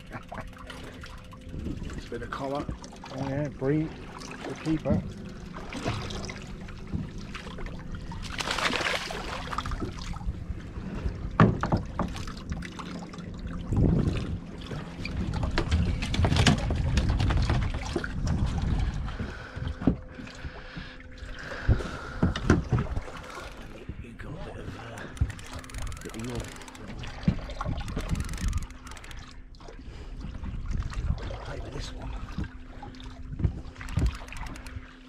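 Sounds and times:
water splashing against boat hull: 0:00.0 - 0:35.0
wind rumble on microphone: 0:13.5 - 0:20.6, 0:30.2 - 0:34.9
knocks and clicks from gear: 0:25.0 - 0:29.2, 0:33.8 - 0:34.8.

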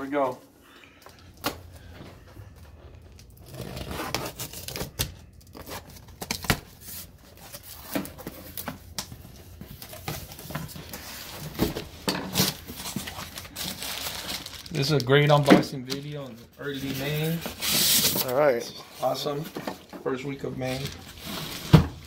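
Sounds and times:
packing tape ripping: 0:03.2 - 0:06.7.

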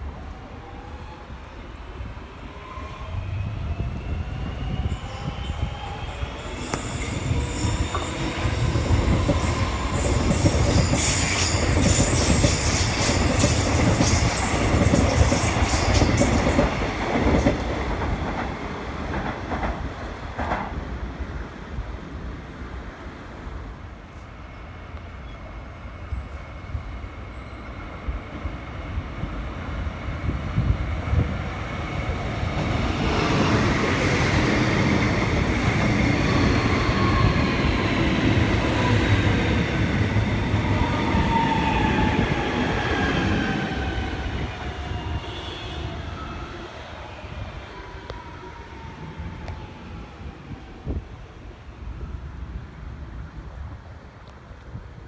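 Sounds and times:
train wheels rumbling on rails: 0:02.6 - 0:21.5, 0:27.3 - 0:50.9.

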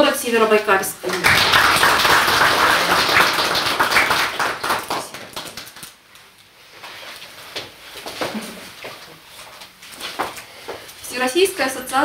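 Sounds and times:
people clapping: 0:01.0 - 0:06.0.

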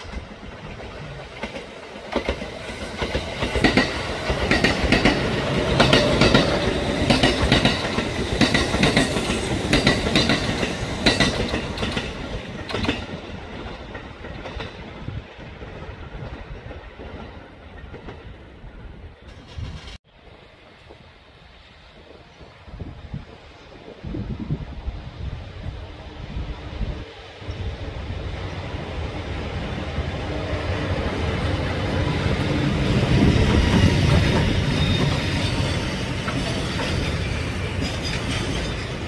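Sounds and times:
train wheels clickety-clack: 0:00.0 - 0:18.4, 0:19.2 - 0:24.4, 0:29.6 - 0:39.0.

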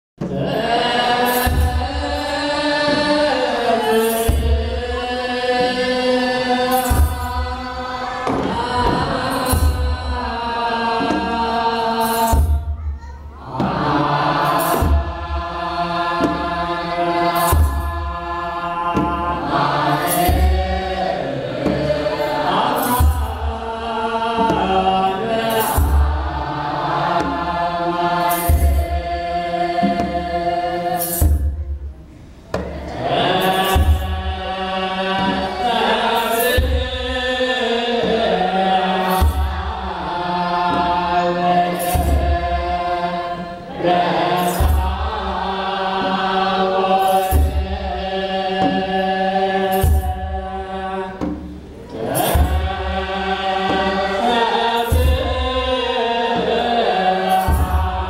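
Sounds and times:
group chanting a hymn: 0:00.2 - 0:58.0
deep drum boom: 0:08.2 - 0:10.2.

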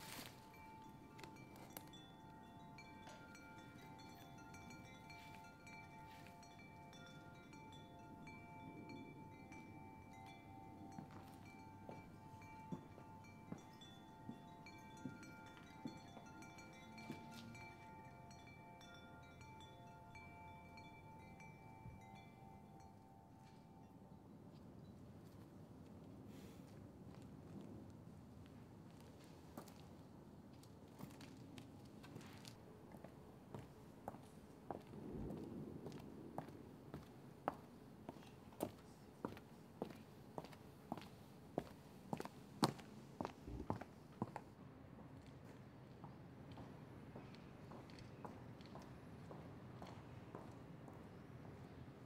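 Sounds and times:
chime-like tones ringing: 0:00.0 - 0:24.4.

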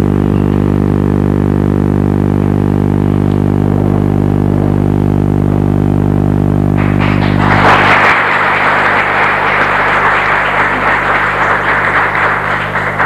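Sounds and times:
steady low drone: 0:00.0 - 0:13.0
audience applause: 0:06.8 - 0:13.0.

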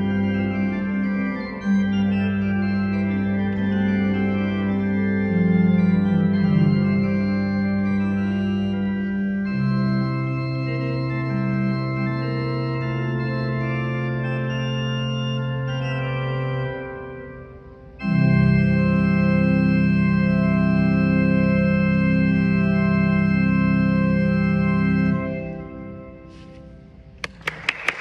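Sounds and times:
organ playing sustained chords: 0:00.0 - 0:28.0.

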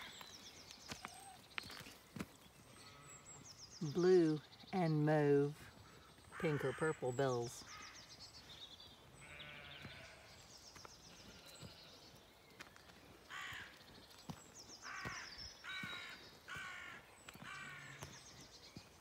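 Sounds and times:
crow cawing: 0:13.3 - 0:13.7, 0:14.8 - 0:18.0.

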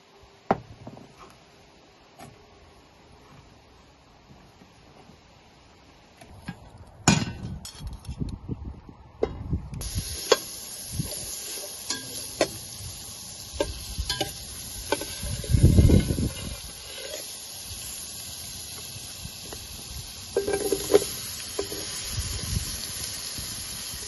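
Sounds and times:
butter sizzling in a hot pot: 0:09.8 - 0:24.0.

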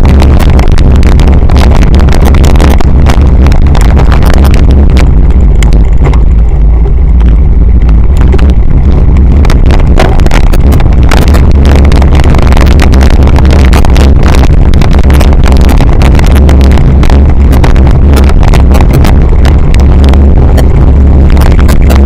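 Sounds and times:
bike rattling over rough ground: 0:00.0 - 0:12.6
wind buffeting microphone: 0:00.0 - 0:22.0.

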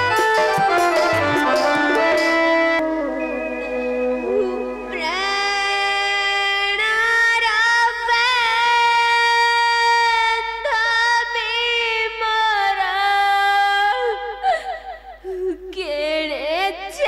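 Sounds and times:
girl singing: 0:04.2 - 0:14.4, 0:15.3 - 0:17.0.

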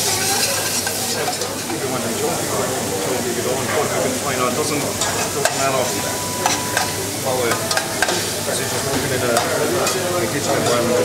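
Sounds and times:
metal utensil clinking on pans: 0:00.0 - 0:01.9, 0:04.9 - 0:11.0
pork sizzling in a frying pan: 0:00.0 - 0:11.0.

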